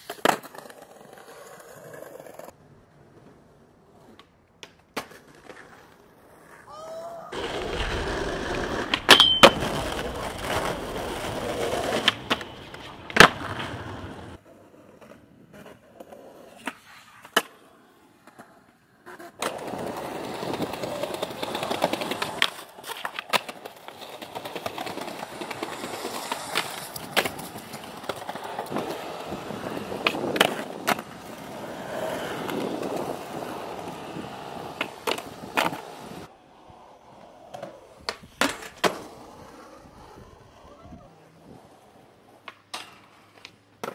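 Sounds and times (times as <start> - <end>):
skateboard clacking on ground: 0.0 - 6.2, 7.4 - 17.6, 18.2 - 43.9
skateboard wheels rolling on concrete: 0.0 - 43.9.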